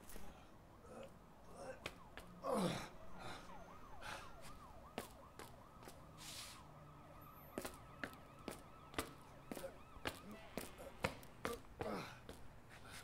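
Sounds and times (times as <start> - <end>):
faint warbling siren: 0.0 - 12.7
footstep-like clicks and scuffs: 1.8 - 2.4, 4.4 - 6.7, 7.5 - 13.0.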